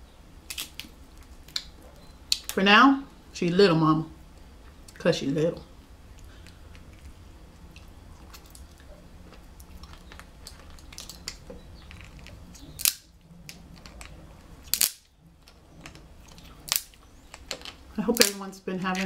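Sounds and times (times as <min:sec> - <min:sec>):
crab shells cracking: 0:00.5 - 0:02.6, 0:06.2 - 0:18.4.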